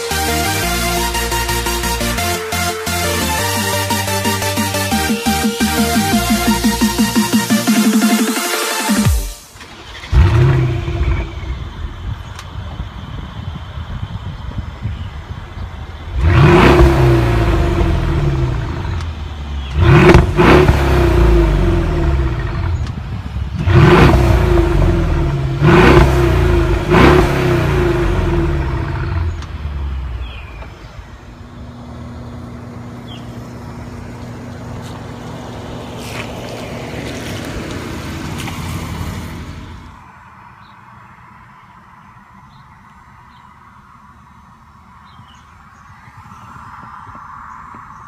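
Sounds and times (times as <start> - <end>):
car engine revving: 0.0 - 13.1, 15.9 - 40.0
car engine idling: 0.0 - 46.0.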